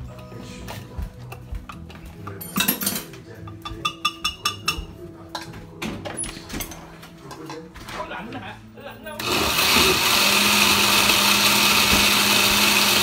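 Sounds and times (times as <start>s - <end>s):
spoon clinking against glass: 2.4s - 4.8s.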